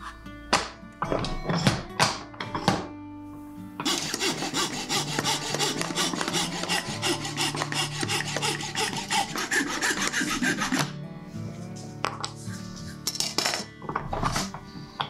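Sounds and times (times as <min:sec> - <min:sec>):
coping saw rasping through wood: 0:03.8 - 0:10.9.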